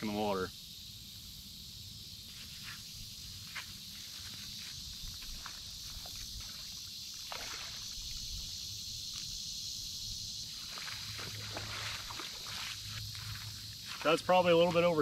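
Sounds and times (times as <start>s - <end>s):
water splashing as person wades: 5.3s - 8.5s, 10.5s - 14.2s.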